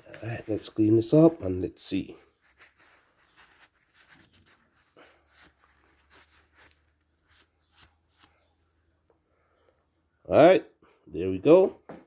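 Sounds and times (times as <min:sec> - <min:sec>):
faint rubbing: 0:02.1 - 0:08.6.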